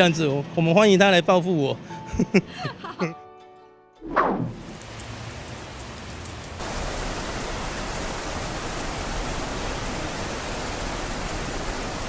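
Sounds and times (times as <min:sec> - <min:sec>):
falling whoosh: 0:04.0 - 0:04.8
heavy rain hissing: 0:04.5 - 0:12.0.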